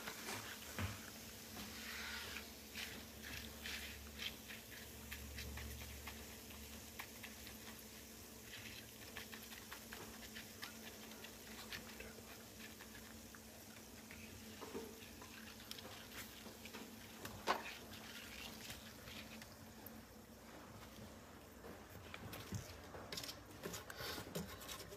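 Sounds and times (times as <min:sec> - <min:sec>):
banknote sizzling in frying pan: 0:00.0 - 0:20.1.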